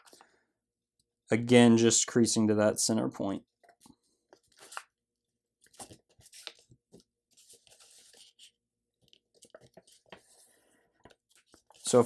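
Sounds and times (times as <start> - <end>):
paper crinkling: 5.6 - 12.0
paper sliding rustle: 7.3 - 8.6.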